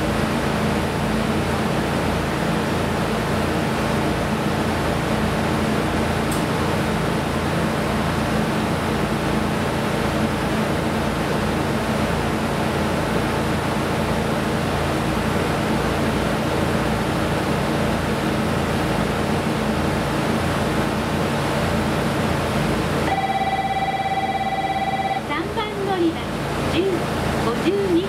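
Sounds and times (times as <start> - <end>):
electronic chime tone: 23.1 - 25.2.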